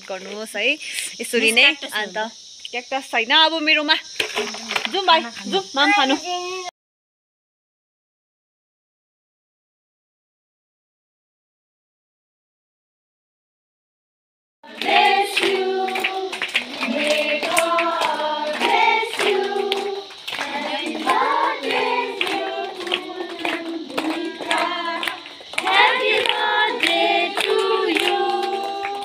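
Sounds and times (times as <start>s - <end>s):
children singing: 14.7s - 29.0s
hands clapping in time: 14.7s - 29.0s.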